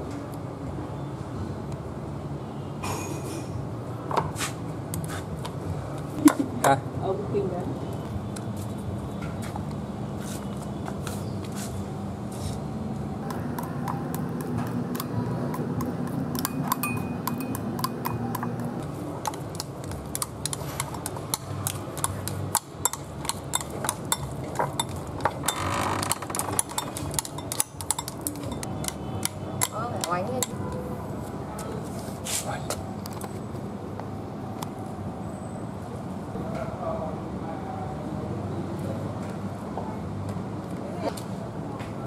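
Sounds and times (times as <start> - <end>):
chopsticks clicking against bowl: 13.2 - 25.5, 26.3 - 30.6.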